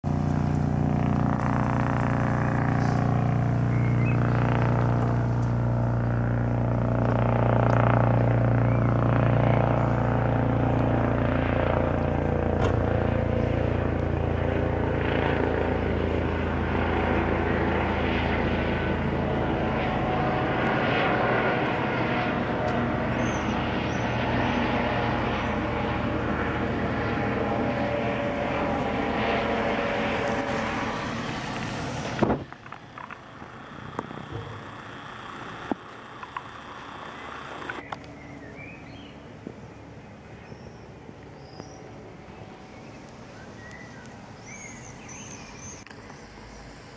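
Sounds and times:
helicopter flying overhead: 0.0s - 46.9s.

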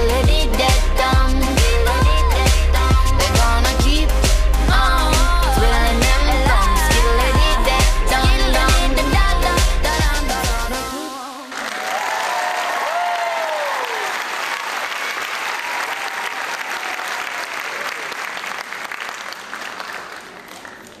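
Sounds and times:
audience applauding: 11.5s - 21.0s
voices whooping and cheering: 11.7s - 14.3s, 15.4s - 18.2s.

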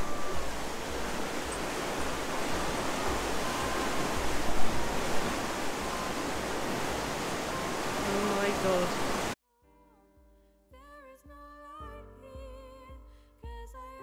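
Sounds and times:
water rushing into lock: 0.0s - 9.4s.

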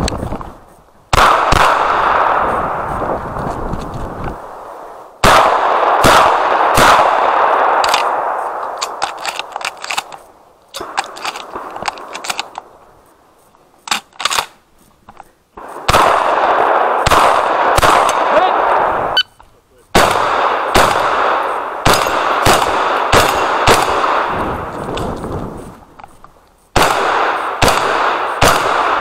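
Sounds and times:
shotgun shots with echo: 1.1s - 2.7s, 5.2s - 9.0s, 15.6s - 19.2s, 20.0s - 24.8s, 26.8s - 29.0s.

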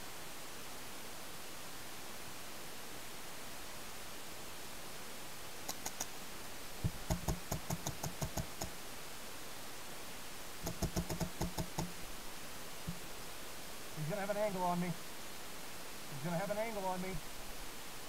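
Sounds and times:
steady hiss: 0.0s - 18.0s
light clicks: 5.6s - 6.1s
paintball marker firing: 10.6s - 11.9s.

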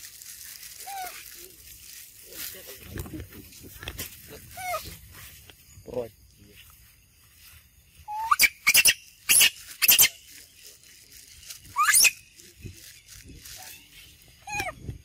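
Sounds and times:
baby monkey squealing: 0.8s - 1.2s, 4.4s - 5.0s, 8.1s - 10.2s, 11.7s - 12.4s, 13.6s - 14.9s.

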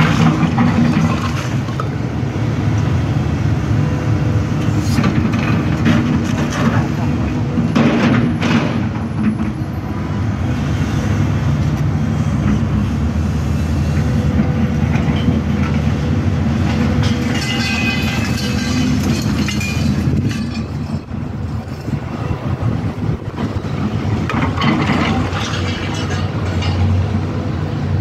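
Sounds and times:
excavator diesel engine running: 0.0s - 28.0s
bucket scraping through concrete rubble: 17.1s - 20.8s.

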